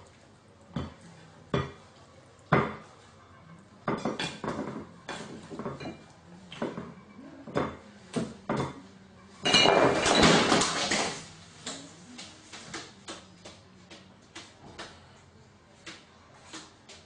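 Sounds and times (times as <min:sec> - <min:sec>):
dishes knocking and clinking: 0:01.6 - 0:01.8, 0:02.5 - 0:02.9, 0:03.8 - 0:08.8, 0:09.4 - 0:11.2.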